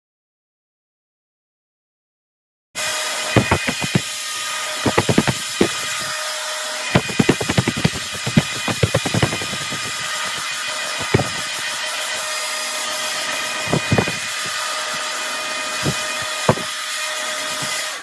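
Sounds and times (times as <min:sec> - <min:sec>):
short knocks or clicks: 0:03.4 - 0:04.0, 0:04.9 - 0:06.1, 0:07.0 - 0:10.4, 0:11.0 - 0:11.8, 0:13.7 - 0:14.6, 0:15.8 - 0:16.7.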